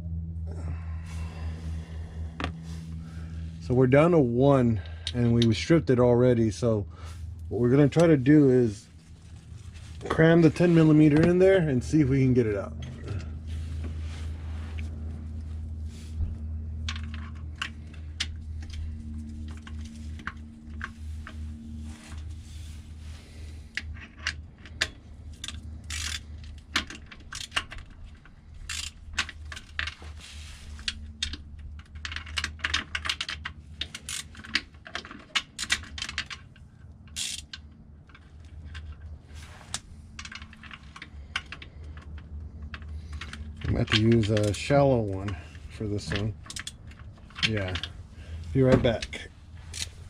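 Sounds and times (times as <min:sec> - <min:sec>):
steady low hum: 0:00.0 - 0:50.0
ratchet clicking on bolts: 0:24.8 - 0:26.2, 0:28.6 - 0:29.0, 0:37.1 - 0:37.6.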